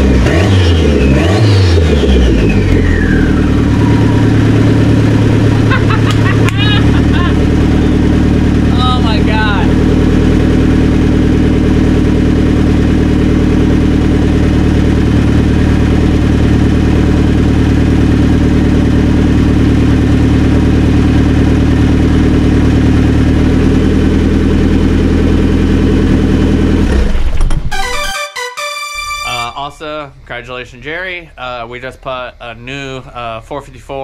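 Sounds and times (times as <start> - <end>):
car engine idling: 1.9 - 27.6.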